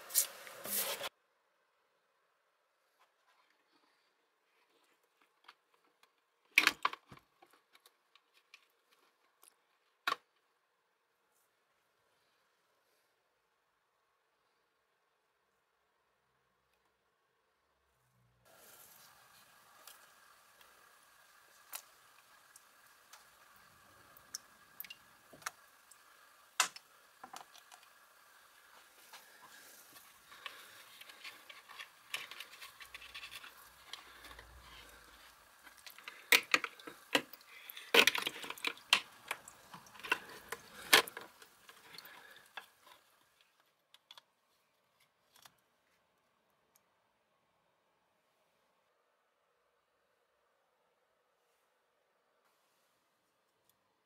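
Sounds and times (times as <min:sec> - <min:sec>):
clicks and knocks of handled parts: 0:30.3 - 0:35.0, 0:35.6 - 0:43.0
liquid sloshing in a plastic bucket: 0:30.3 - 0:43.0.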